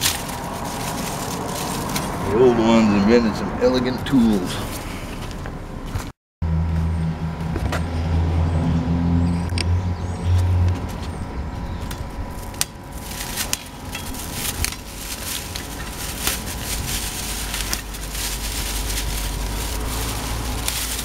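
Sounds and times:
dry stems crackling and snapping: 0:00.0 - 0:02.4, 0:10.3 - 0:21.0
low engine hum: 0:00.0 - 0:21.0.

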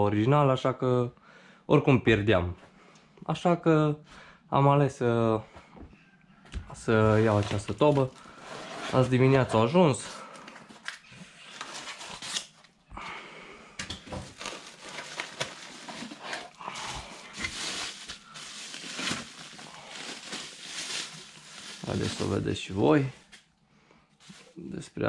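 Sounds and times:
cardboard box rustling and scraping: 0:07.1 - 0:09.7, 0:14.2 - 0:22.2.

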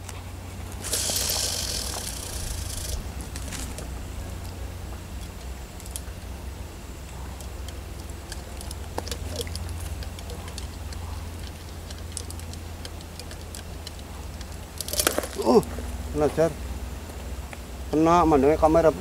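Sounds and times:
faint clicks and ticks: 0:07.0 - 0:15.2.

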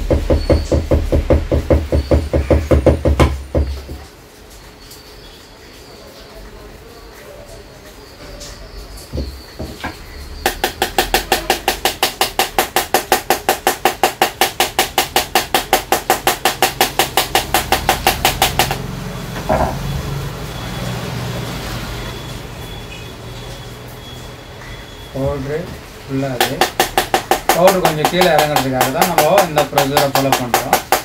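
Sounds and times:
screwdriver tapping plastic cartridge: 0:26.4 - 0:31.0.

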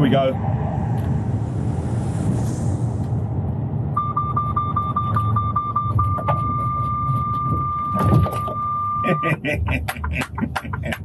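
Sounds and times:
short rush of noise: 0:00.0 - 0:04.0
road noise: 0:00.0 - 0:11.0
truck engine: 0:00.0 - 0:11.0
rapid high warning beeps: 0:04.0 - 0:09.4.

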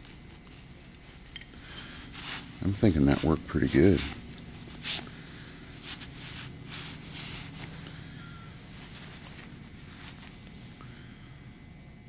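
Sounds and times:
towel wiping wet axe head: 0:02.0 - 0:07.9.

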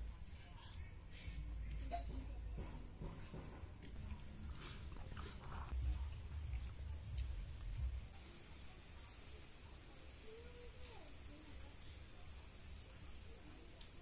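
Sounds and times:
insect chirping: 0:00.0 - 0:14.0
low rumble: 0:01.4 - 0:08.3.

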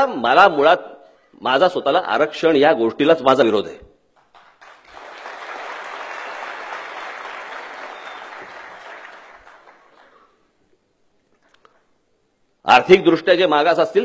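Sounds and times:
audience applauding: 0:04.2 - 0:10.2.

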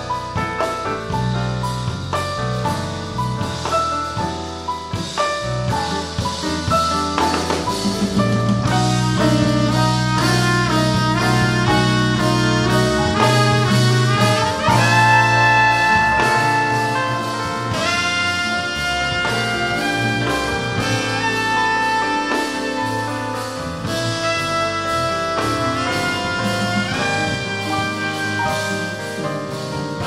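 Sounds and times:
bass and rhythm section: 0:00.0 - 0:30.0
saxophone and trumpet playing: 0:08.6 - 0:30.0.

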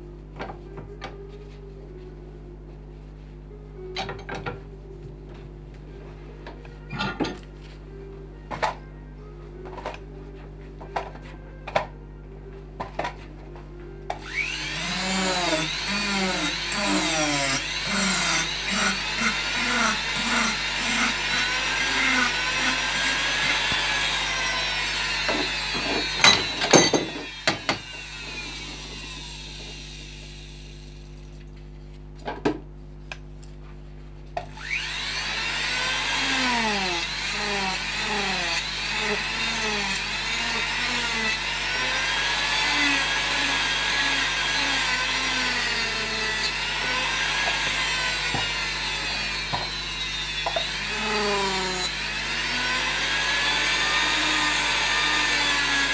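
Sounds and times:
power carving tool grinding wood: 0:14.1 - 0:31.2, 0:34.4 - 0:55.9.

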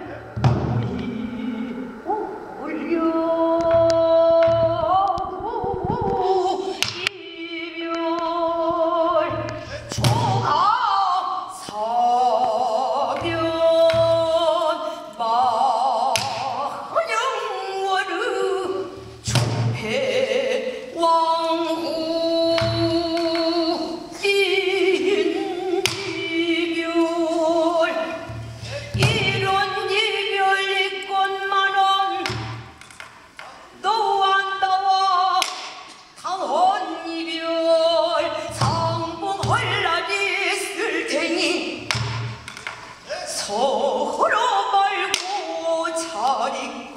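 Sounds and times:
woman singing with wide vibrato: 0:00.0 - 0:46.9
barrel drum thumps and stick strokes: 0:00.4 - 0:01.1, 0:28.1 - 0:29.9, 0:38.5 - 0:39.9, 0:41.8 - 0:43.0.

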